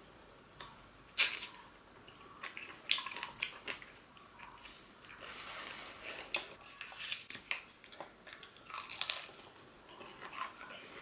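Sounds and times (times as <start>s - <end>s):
crunching fried chicken: 6.8s - 11.0s.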